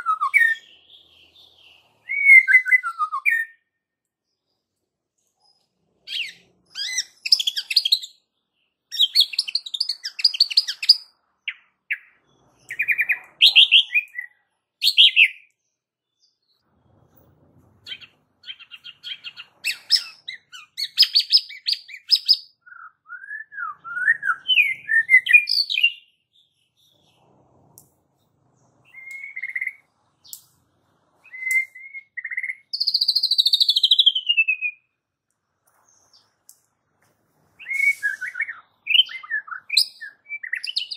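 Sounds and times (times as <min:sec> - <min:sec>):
bird singing trills and whistles: 0:00.0 - 0:03.8, 0:05.4 - 0:08.3, 0:08.9 - 0:16.6, 0:17.8 - 0:27.3, 0:28.8 - 0:30.5, 0:31.2 - 0:35.0, 0:37.6 - 0:40.9.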